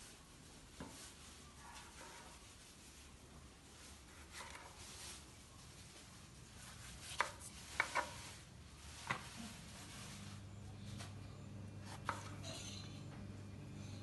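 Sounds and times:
knife cutting vegetables: 7.0 - 8.3, 11.8 - 12.8.

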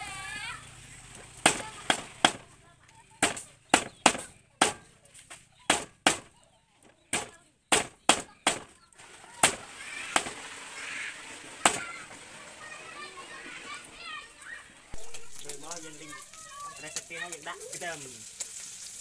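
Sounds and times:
cleaver chopping on wooden block: 1.4 - 2.4, 3.2 - 4.9, 5.7 - 6.3, 7.1 - 8.7.

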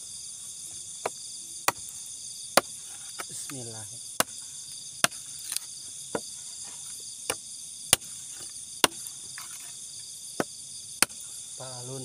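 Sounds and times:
crickets and night insects: 0.0 - 12.0
machete chopping wood: 1.0 - 1.9, 2.6 - 3.6, 4.2 - 4.4, 5.0 - 6.3, 7.2 - 9.8, 10.4 - 11.2.

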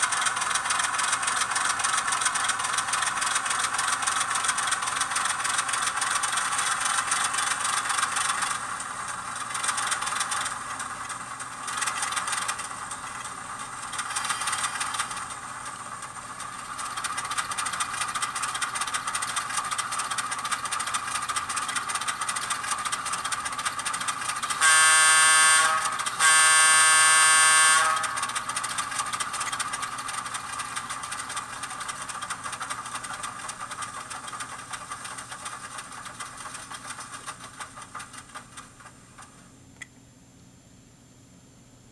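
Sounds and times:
simulated diesel engine running: 0.0 - 39.6
train horn blasts: 24.5 - 28.4.

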